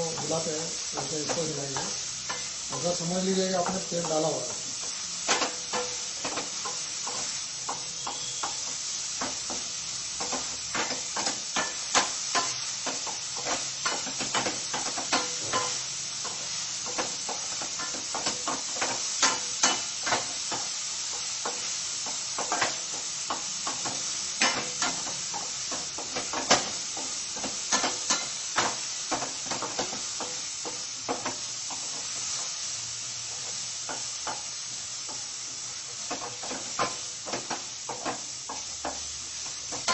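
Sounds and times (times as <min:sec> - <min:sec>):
onions hissing in pan: 0:00.0 - 0:39.9.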